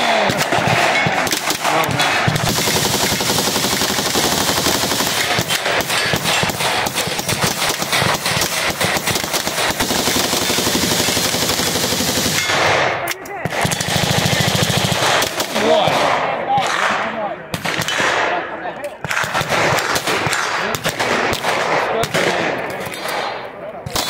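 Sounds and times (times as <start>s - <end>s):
automatic gunfire bursts: 0.0s - 16.2s.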